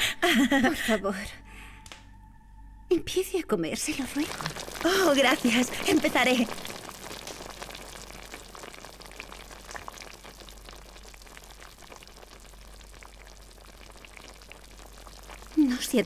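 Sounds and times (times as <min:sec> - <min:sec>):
fire crackling: 0:03.8 - 0:16.0
stew simmering hiss: 0:03.9 - 0:16.0.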